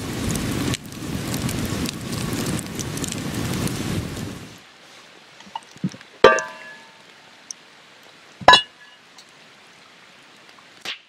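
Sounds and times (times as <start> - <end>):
campfire crackles: 0.0 - 11.0
ringing metal clinks: 6.2 - 7.0.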